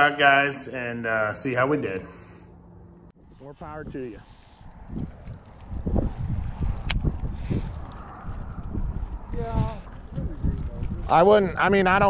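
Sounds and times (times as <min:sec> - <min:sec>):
wind buffeting microphone: 0:03.1 - 0:12.0.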